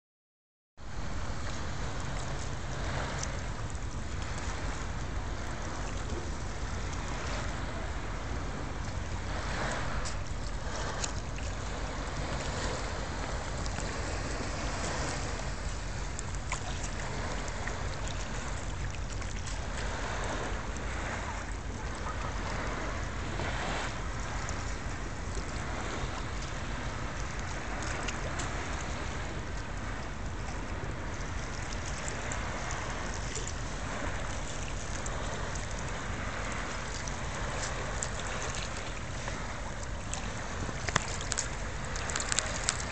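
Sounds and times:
small waves lapping: 0:00.8 - 0:42.9
wind buffeting microphone: 0:00.9 - 0:42.9.

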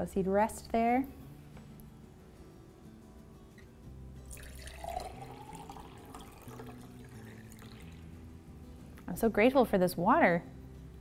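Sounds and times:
water pouring into glass jar: 0:04.2 - 0:08.1.

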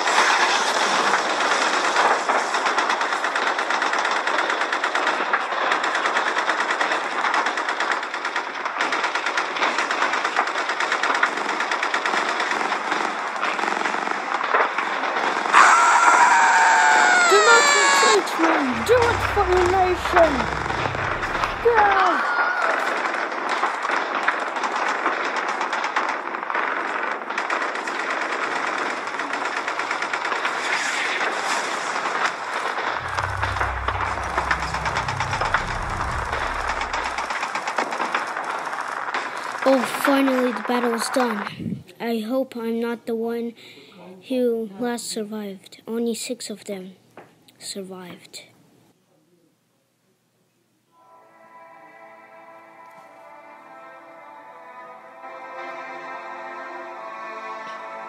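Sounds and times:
loud falling-pitch sound: 0:17.2 - 0:22.1, 0:33.0 - 0:37.4
machine gun fire: 0:17.3 - 0:31.2, 0:33.0 - 0:39.7.

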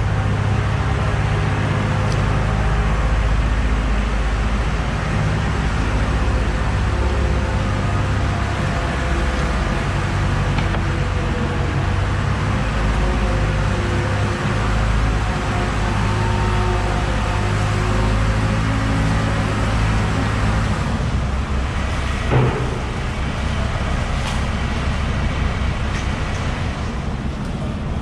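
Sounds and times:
steady engine-like hum: 0:00.0 - 0:28.0
single knock: 0:22.3 - 0:23.1.

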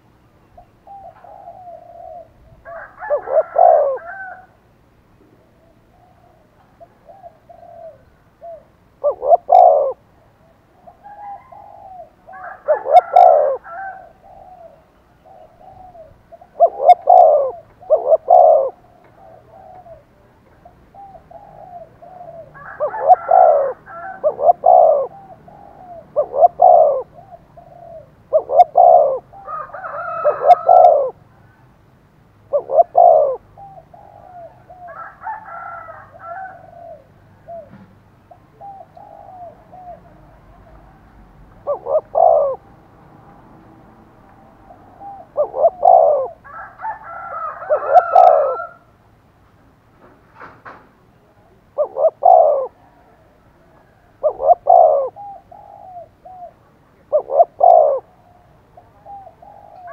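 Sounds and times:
faint dove cooing: 0:00.0 - 0:31.7, 0:32.5 - 0:48.9, 0:50.4 - 0:59.9
dove cooing loudly: 0:00.6 - 0:04.6, 0:05.4 - 0:31.5, 0:32.5 - 0:42.8, 0:44.3 - 0:48.9, 0:51.2 - 0:59.9.

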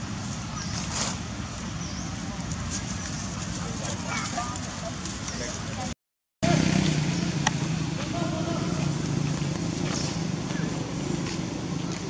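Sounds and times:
low motor rumble: 0:06.4 - 0:12.0.

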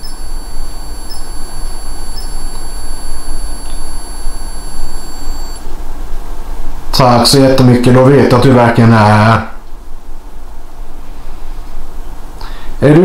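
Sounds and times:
high-pitched electronic tone: 0:00.0 - 0:05.6
short electronic chirps: 0:00.0 - 0:05.6
loud low hum: 0:00.0 - 0:06.1.

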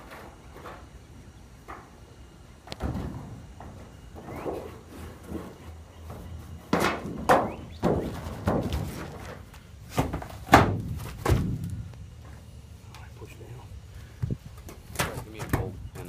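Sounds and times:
metal panel knocking hollow thunks: 0:02.8 - 0:04.7, 0:06.1 - 0:09.3, 0:09.9 - 0:11.8.

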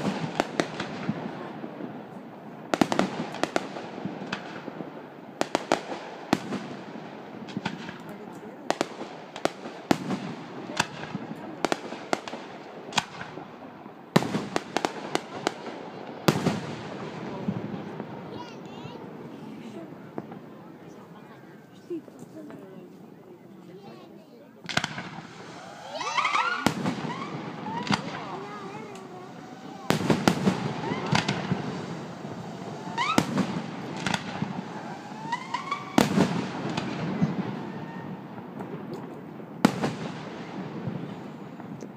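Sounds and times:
small firework pops and crackle: 0:00.0 - 0:19.0, 0:24.6 - 0:41.9
firework shells bursting: 0:24.6 - 0:40.2
rising firework whistle: 0:25.0 - 0:38.5.

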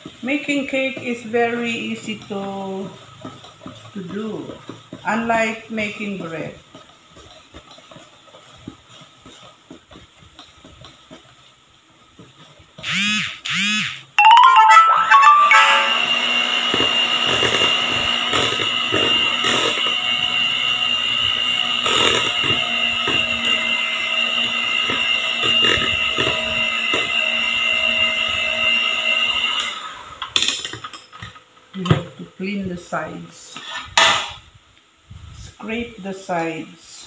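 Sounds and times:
electric hand mixer whining: 0:12.8 - 0:14.1, 0:15.5 - 0:30.4.

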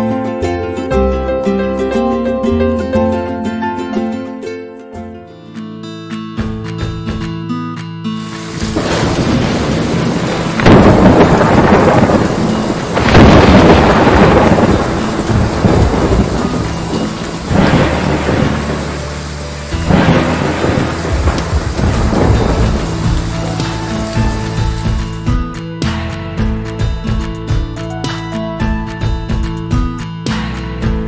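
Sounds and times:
steady rain: 0:08.2 - 0:25.4
thunder rolling: 0:08.4 - 0:25.2.

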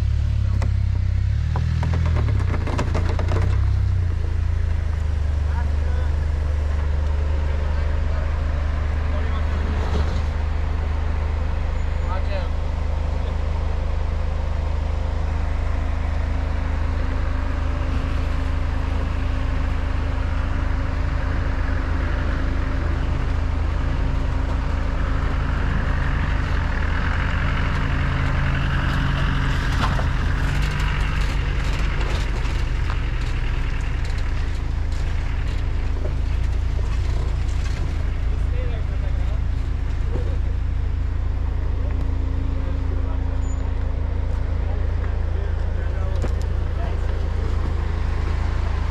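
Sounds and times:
engine and drivetrain rumble: 0:00.0 - 0:48.9
knocks and rattles: 0:01.4 - 0:04.0.

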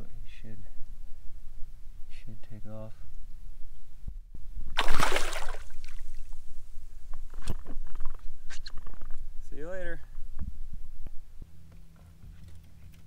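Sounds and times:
fish splashing in shallow water: 0:04.8 - 0:06.3.

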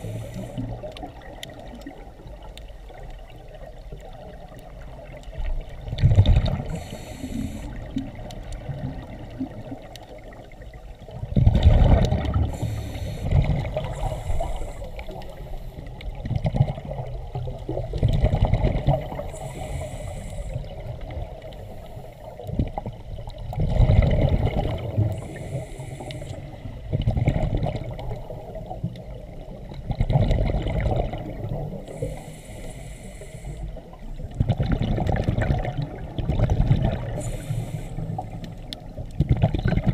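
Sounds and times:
regulator hissing inhalations: 0:00.0 - 0:00.8, 0:06.7 - 0:07.8, 0:12.4 - 0:15.9, 0:19.3 - 0:20.7, 0:25.2 - 0:26.6, 0:31.9 - 0:33.8, 0:37.2 - 0:38.6
underwater exhaled air bubbling: 0:00.0 - 0:39.9.

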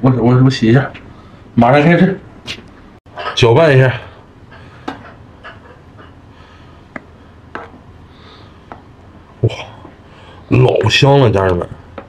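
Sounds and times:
soft breaths: 0:01.0 - 0:01.6, 0:04.0 - 0:05.2, 0:06.0 - 0:08.9, 0:09.5 - 0:10.5.

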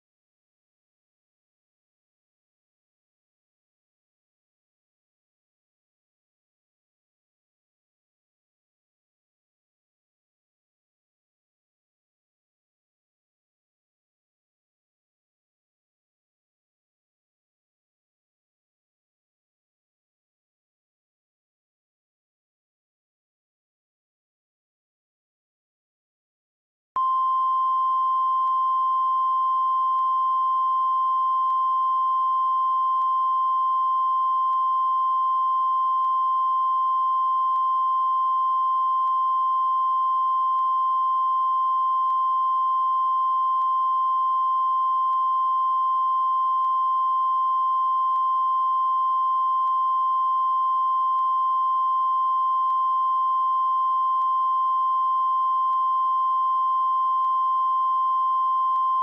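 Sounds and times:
steady high-pitched test tone: 0:27.0 - 0:59.0.

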